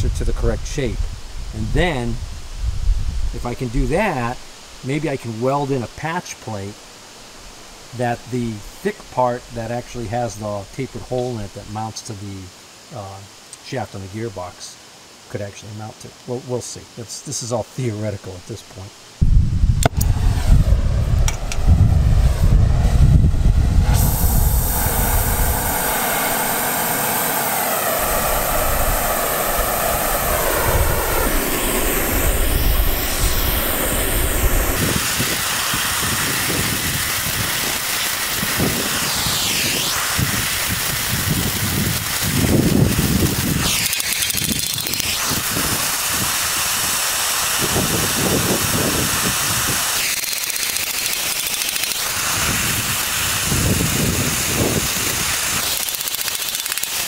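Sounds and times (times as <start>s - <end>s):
gas torch hissing: 19.8s - 57.0s.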